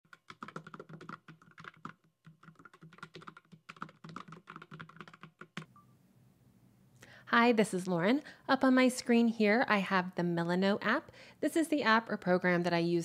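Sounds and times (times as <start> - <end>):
keyboard typing clicks: 0.1 - 5.7.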